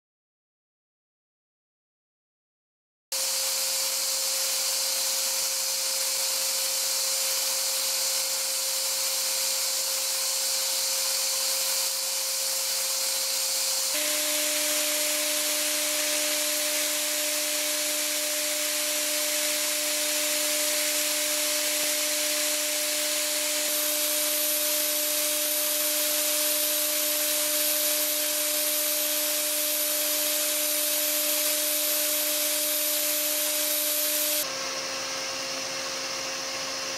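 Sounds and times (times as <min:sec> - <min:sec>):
machining spindle whining: 0:09.0 - 0:34.4
air nozzle hissing: 0:10.0 - 0:34.4
high whine: 0:13.9 - 0:34.4.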